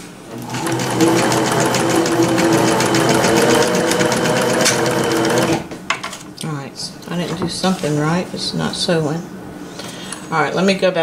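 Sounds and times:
sewing machine running: 0.3 - 5.7.

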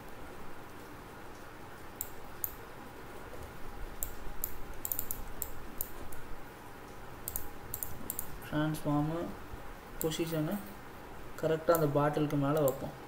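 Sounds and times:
faint room noise: 0.0 - 13.0
computer mouse clicking: 2.0 - 2.6, 4.0 - 6.2, 7.2 - 8.3, 11.7 - 12.8.

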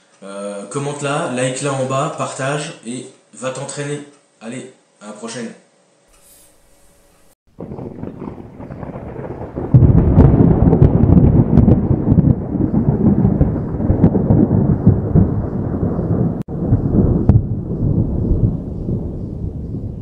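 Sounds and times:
thunder rolling rumble: 7.5 - 20.0.

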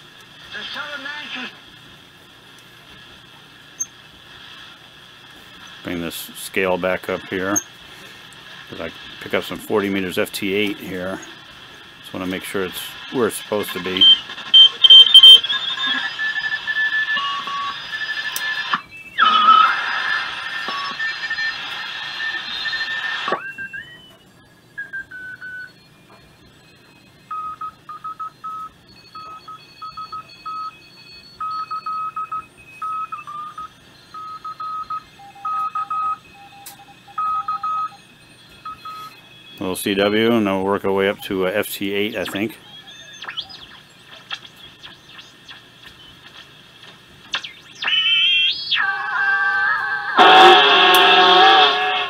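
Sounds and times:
digital signal tones from radio: 5.4 - 24.1, 24.8 - 52.0
morse code tones: 12.1 - 19.7, 26.6 - 49.1, 50.0 - 52.0
rising whistle from radio tuning: 12.4 - 24.0, 42.0 - 52.0.

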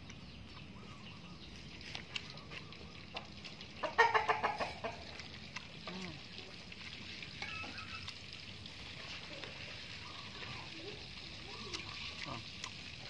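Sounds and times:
chicken clucking: 3.8 - 5.2.

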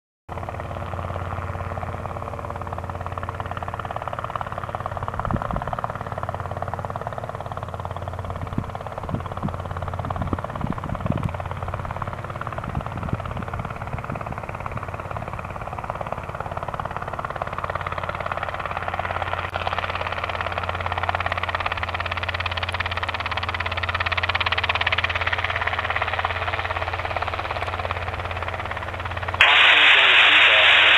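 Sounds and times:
helicopter drone: 0.3 - 30.9.

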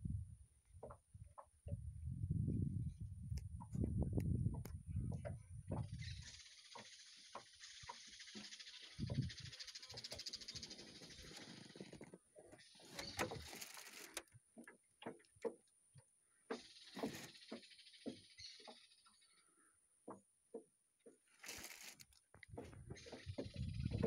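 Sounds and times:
waves lapping against boat hull: 6.7 - 18.8, 20.0 - 24.0.

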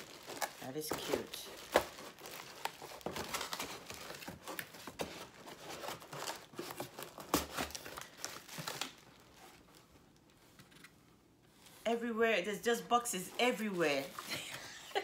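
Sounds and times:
plastic wrapping crinkling: 0.0 - 10.8, 13.4 - 15.0
cardboard box rustling: 0.0 - 11.0.

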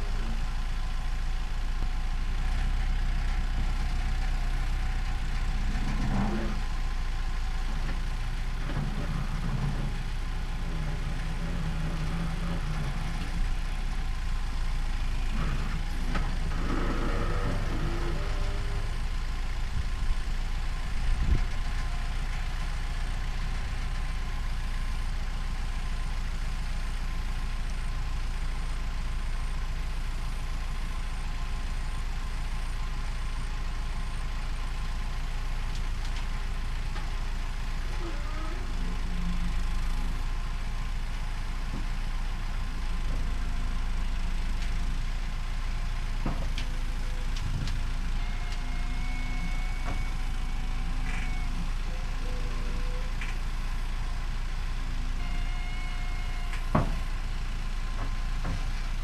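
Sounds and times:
diesel engine running under load: 0.0 - 59.0
short whines: 46.6 - 53.6.

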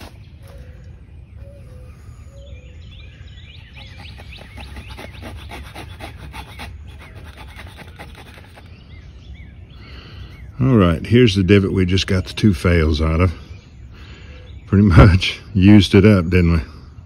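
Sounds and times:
knife scraping wood: 0.0 - 0.8, 3.6 - 8.8
birds chirping: 0.0 - 17.0.

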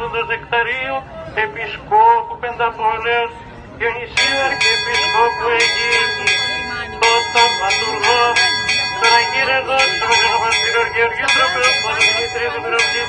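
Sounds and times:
man chanting: 0.0 - 13.0
church bells pealing: 4.2 - 13.0.

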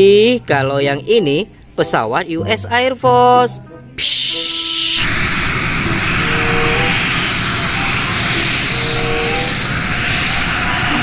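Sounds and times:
turboprop aircraft flying low: 4.6 - 11.0.

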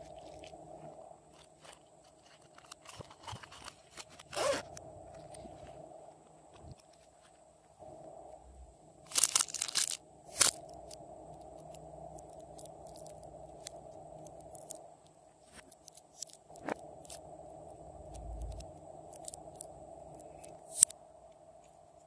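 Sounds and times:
faint hum: 0.0 - 22.0
plastic charms crackling: 9.1 - 11.0.

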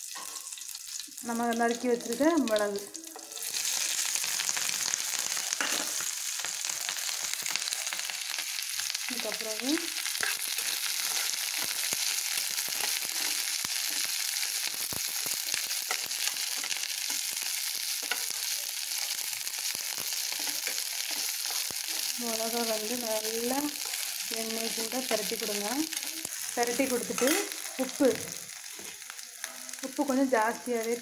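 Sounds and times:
chillies sizzling in hot oil: 0.0 - 31.0
spatula stirring in pan: 9.9 - 23.0.

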